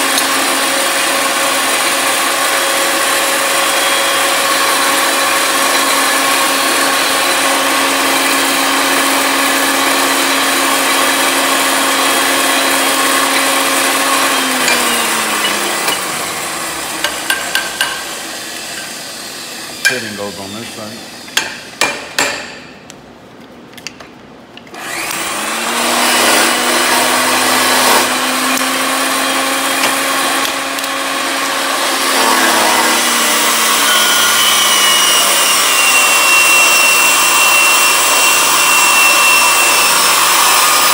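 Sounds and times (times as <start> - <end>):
pipe threading machine motor hum: 0.0 - 20.8, 24.6 - 40.9
sharp metal knocks: 17.0 - 18.0, 21.4 - 22.9.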